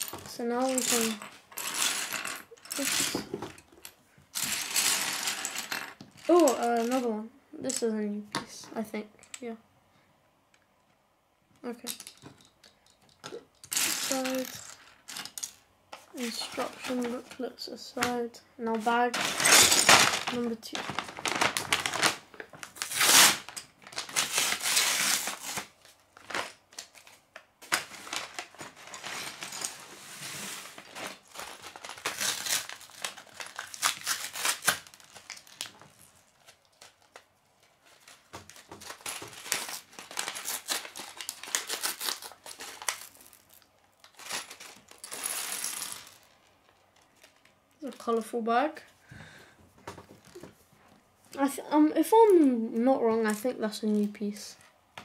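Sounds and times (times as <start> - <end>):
plastic pieces clattering on table: 0.0 - 7.0, 11.8 - 15.6, 18.7 - 37.2, 37.9 - 47.5
paper bag crinkling and tearing: 19.1 - 47.5.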